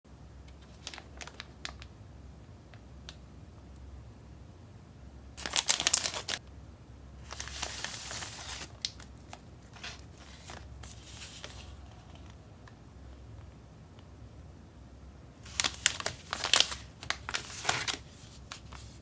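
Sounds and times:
plastic film crinkling: 0.5 - 1.9, 5.4 - 6.4, 7.2 - 12.8, 15.4 - 19.0
plastic wrapper ripping: 0.6 - 1.9, 5.4 - 6.4, 7.3 - 12.4, 15.5 - 18.9.

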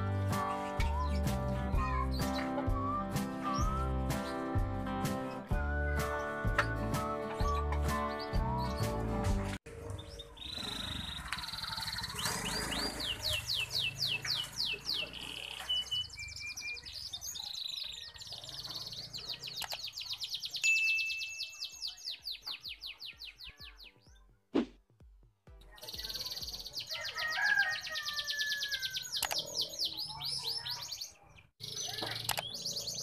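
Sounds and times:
canary singing trills: 9.9 - 24.2, 25.7 - 33.0.

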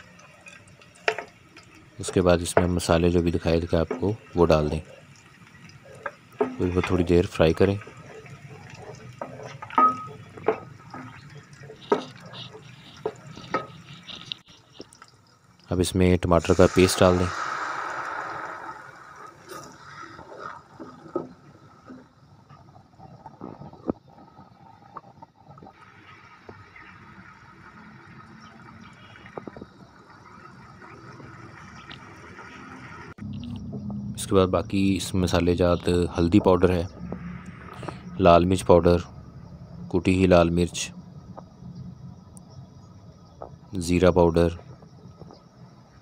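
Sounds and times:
light sizzle of frying: 0.0 - 33.2
wooden spoon stirring: 5.0 - 15.1
spoon knocking against pan: 11.9 - 13.8
paste sizzling in a pan: 16.4 - 21.3.

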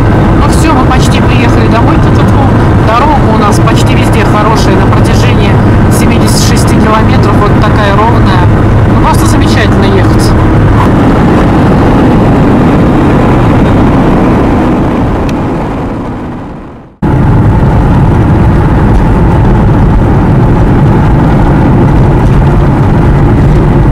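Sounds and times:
car engine and road noise: 0.0 - 23.9.

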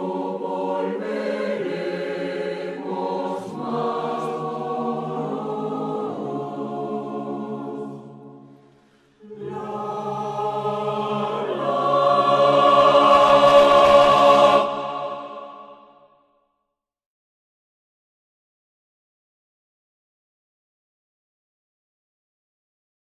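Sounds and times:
choir singing sustained chords: 0.0 - 16.3.

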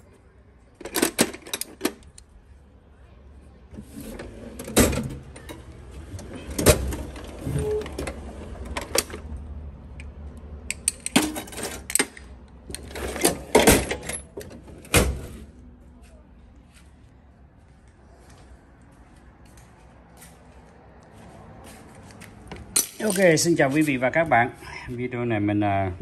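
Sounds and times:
drawers opening and shutting: 0.8 - 2.1, 3.8 - 9.3, 11.1 - 15.5
metal tools clanking in drawers: 10.7 - 15.0.

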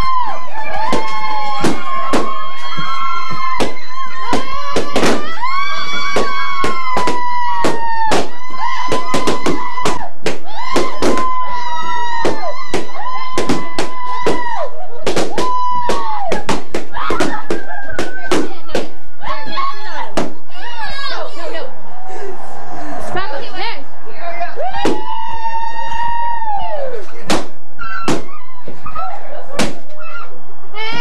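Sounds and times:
balloons popping: 3.5 - 5.4, 6.0 - 11.5, 12.1 - 19.0, 20.1 - 20.4, 27.2 - 28.4
long drooping toots: 21.3 - 25.5.

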